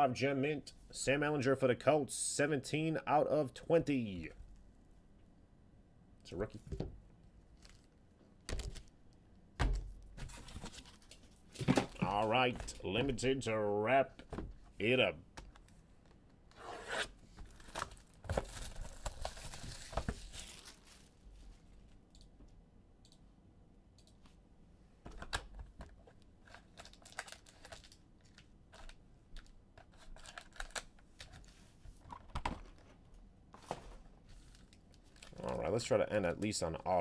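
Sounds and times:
plastic wrap tearing and crinkling: 0:17.5 - 0:21.2, 0:26.4 - 0:28.9.

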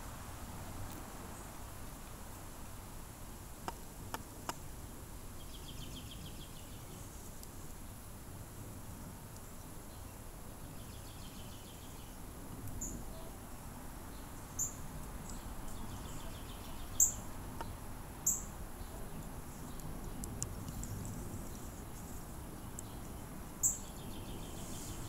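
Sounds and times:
faint steady hiss: 0:00.0 - 0:25.0
faint wildlife trilling: 0:12.8 - 0:25.0.

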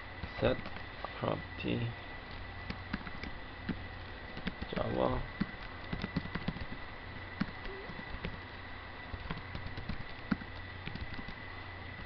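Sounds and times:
faint high whine: 0:00.0 - 0:12.0
low hum: 0:00.0 - 0:12.0
keyboard keys clicking: 0:04.4 - 0:04.8, 0:05.4 - 0:06.8, 0:09.1 - 0:11.4.

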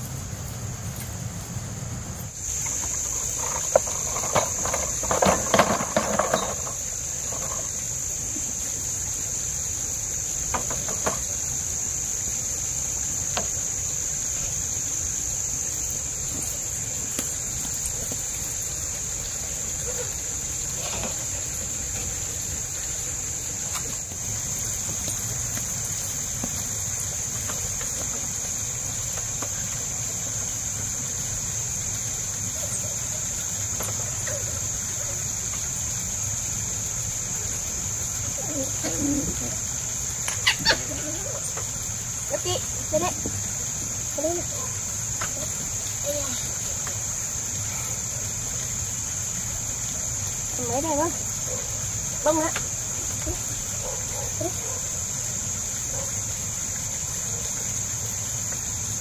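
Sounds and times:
insects droning: 0:00.0 - 0:59.0
clinks and knocks: 0:03.2 - 0:07.7.

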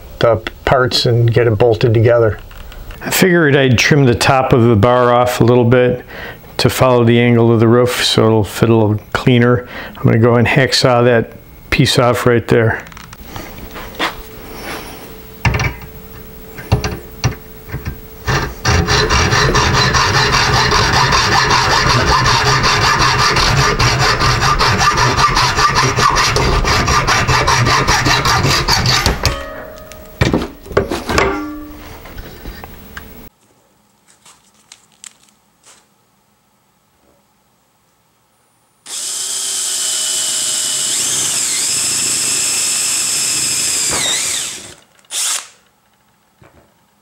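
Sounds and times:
hacksaw cutting metal: 0:18.3 - 0:29.8, 0:43.8 - 0:45.4
sharp knocks: 0:28.9 - 0:31.8
metal clanks: 0:28.9 - 0:31.9.

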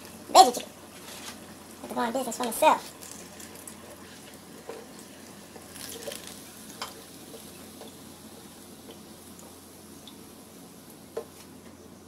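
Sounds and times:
hot oil sizzling: 0:00.0 - 0:12.0
skimmer scraping a pot: 0:00.9 - 0:01.5.

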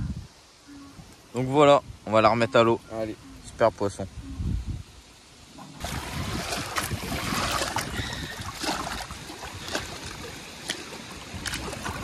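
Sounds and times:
water sloshing and splashing: 0:05.5 - 0:12.0.

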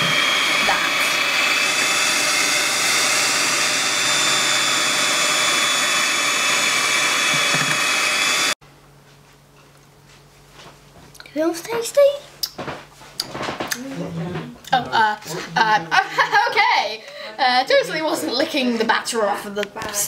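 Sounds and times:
electric hand mixer whining: 0:00.0 - 0:08.6.

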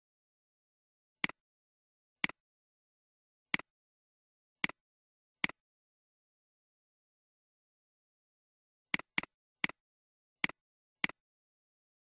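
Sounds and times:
computer mouse clicking: 0:09.0 - 0:09.8, 0:10.4 - 0:11.2.

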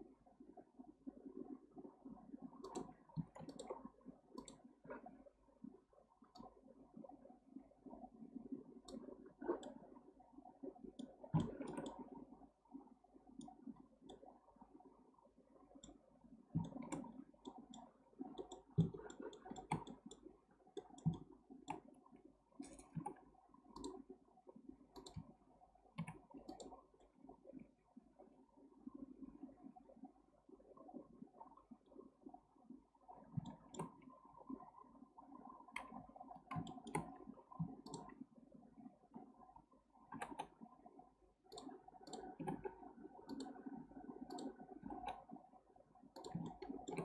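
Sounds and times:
computer mouse clicks: 0:02.6 - 0:04.7, 0:06.3 - 0:06.5, 0:08.8 - 0:09.8, 0:11.0 - 0:12.1, 0:13.4 - 0:14.3, 0:15.8 - 0:21.9, 0:22.6 - 0:24.0, 0:24.9 - 0:25.3, 0:26.0 - 0:27.1, 0:33.4 - 0:34.0, 0:35.7 - 0:38.2, 0:40.1 - 0:40.6, 0:41.4 - 0:45.2, 0:46.1 - 0:47.0
scroll wheel ticks: 0:02.6 - 0:04.7, 0:11.0 - 0:12.1, 0:13.4 - 0:14.3, 0:15.7 - 0:16.0, 0:16.6 - 0:21.9, 0:22.6 - 0:24.1, 0:24.9 - 0:25.4, 0:26.0 - 0:27.2, 0:33.4 - 0:34.0, 0:35.7 - 0:38.2, 0:40.1 - 0:40.6, 0:41.4 - 0:45.3, 0:46.1 - 0:47.0.

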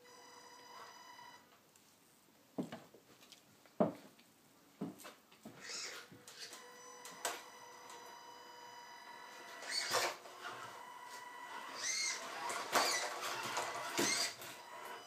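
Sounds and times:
electric motor whining: 0:05.6 - 0:15.0.

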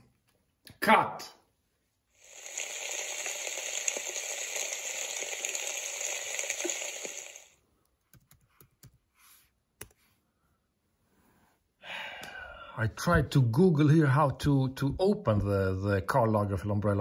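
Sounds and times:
rain-like hiss: 0:02.2 - 0:07.6
laptop keys clicking: 0:08.0 - 0:09.0.

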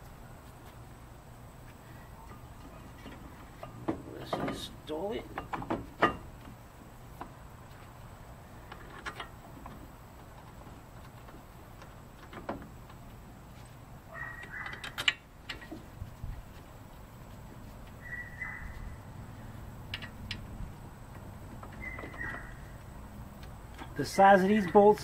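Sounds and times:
bird chirping: 0:18.0 - 0:20.4, 0:21.5 - 0:23.0.

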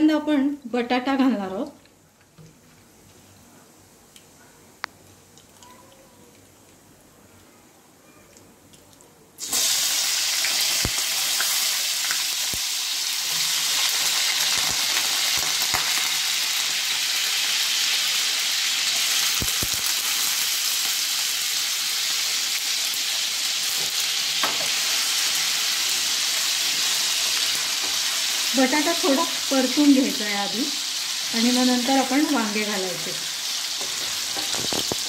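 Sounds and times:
potato sizzling in hot oil: 0:09.4 - 0:35.0.

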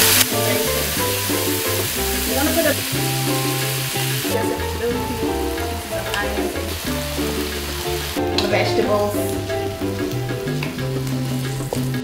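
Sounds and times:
background music with bass notes: 0:00.0 - 0:12.0
food sizzling in a wok: 0:00.0 - 0:12.0.

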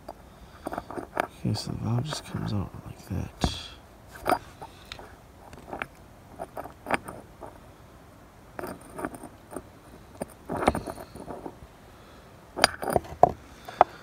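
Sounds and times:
small metal clicks and scrapes: 0:00.0 - 0:02.6, 0:04.1 - 0:07.6, 0:08.6 - 0:11.6, 0:12.6 - 0:14.0.

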